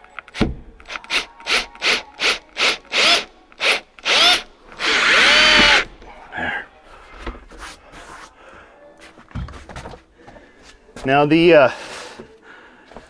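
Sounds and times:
cordless drill motor whine: 1.0 - 5.8.

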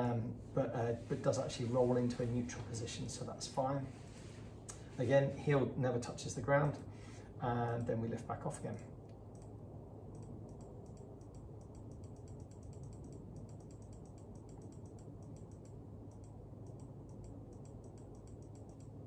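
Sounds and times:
low steady hum: 0.0 - 19.0
computer mouse clicking: 9.1 - 9.5, 10.1 - 19.0.

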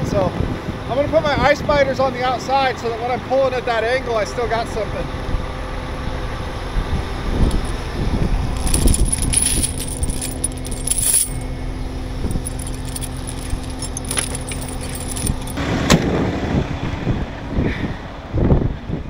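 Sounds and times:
steel chains clinking: 7.4 - 15.6.

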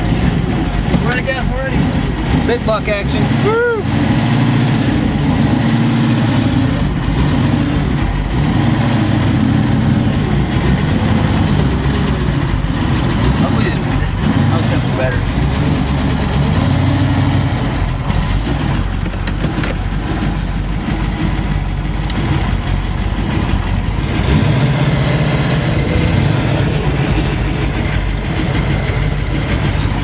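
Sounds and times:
car engine running: 0.0 - 30.0.

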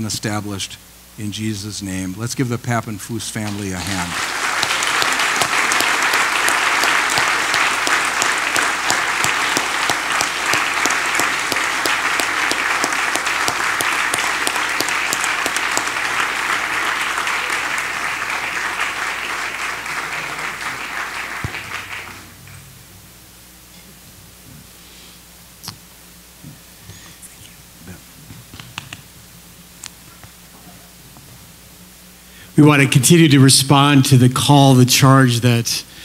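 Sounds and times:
congregation applauding: 3.4 - 22.8.

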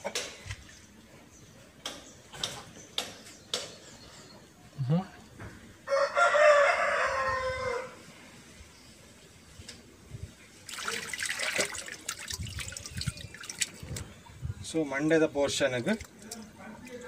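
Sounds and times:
rooster crowing: 5.9 - 8.0
water splashing in plastic tub: 10.6 - 14.2, 15.8 - 17.0.

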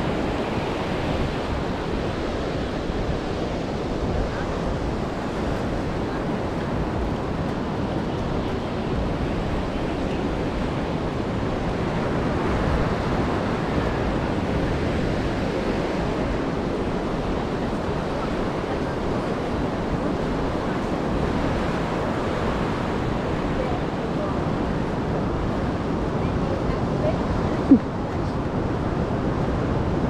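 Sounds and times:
ocean surf washing ashore: 0.0 - 30.0.

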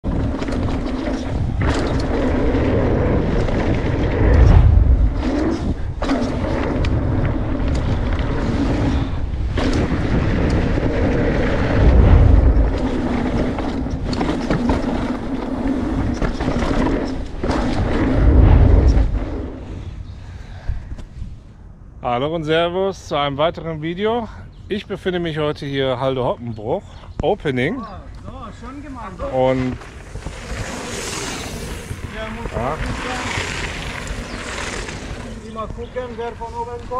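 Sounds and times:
tyres rattling over dirt trail: 0.0 - 19.8, 28.1 - 36.9
heavy low rumbles: 0.0 - 20.0
rushing wind: 0.0 - 22.4, 27.9 - 36.9.

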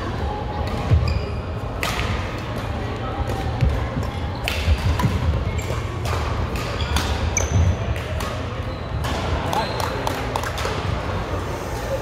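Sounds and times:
shoe squeaks on court: 1.0 - 1.5, 6.7 - 7.8.

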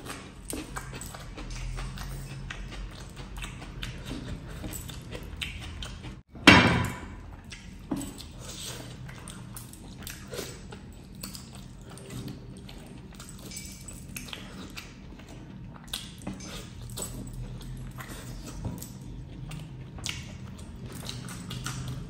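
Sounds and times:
chewing and lip-smacking: 0.0 - 6.3, 7.2 - 22.0.

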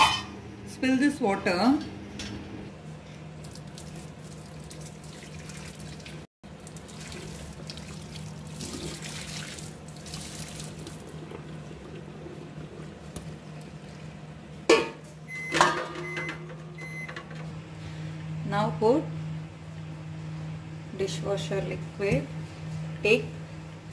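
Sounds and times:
water pouring into a sink: 3.4 - 12.2.

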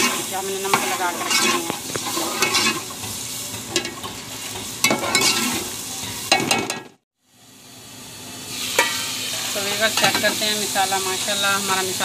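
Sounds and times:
metal ladle scraping pot: 0.0 - 6.8
masala sizzling in a pot: 0.0 - 12.0.

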